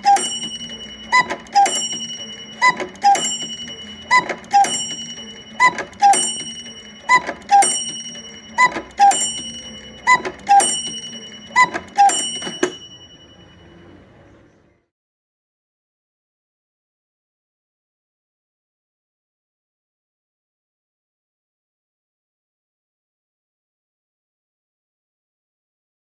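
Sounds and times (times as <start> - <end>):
two-note cuckoo call: 0.0 - 13.4
clock bell ringing: 0.0 - 14.2.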